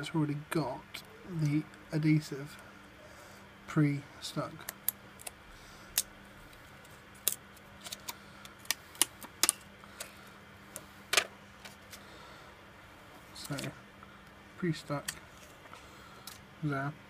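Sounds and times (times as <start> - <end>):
plastic film peeling crackles: 6.0 - 10.1.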